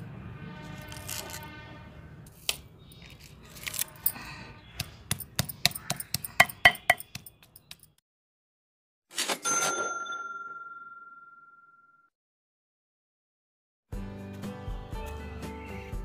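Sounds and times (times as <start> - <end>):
stone pestle pounding on stone: 4.8 - 7.8
pitched ringing: 5.7 - 7.3.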